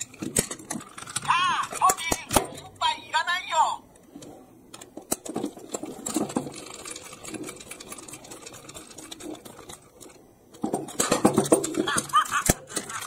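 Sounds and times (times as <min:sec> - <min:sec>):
rapid clicking rattle of gears: 0:04.8 - 0:13.0
toy train motor running: 0:11.6 - 0:13.0.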